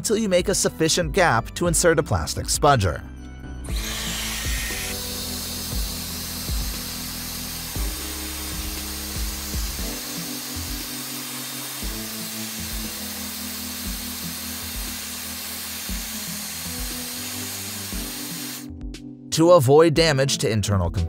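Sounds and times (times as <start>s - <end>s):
background music with low beat: 0.0s - 21.0s
hair dryer blowing: 3.7s - 18.7s.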